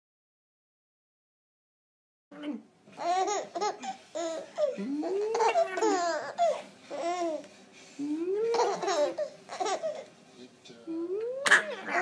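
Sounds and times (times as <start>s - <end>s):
baby laughing: 3.0s - 7.4s, 8.4s - 10.1s, 11.4s - 12.0s
baby squealing: 3.8s - 7.4s.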